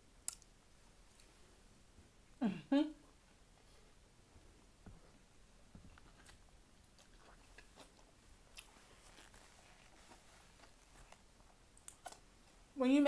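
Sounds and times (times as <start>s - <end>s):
wet mouth clicks and smacks: 0.2s - 0.5s
chewing food: 5.9s - 8.9s.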